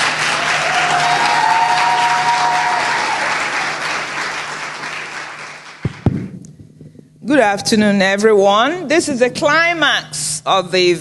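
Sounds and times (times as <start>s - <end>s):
audience applauding: 0.0s - 6.2s
low thump: 5.8s - 6.9s.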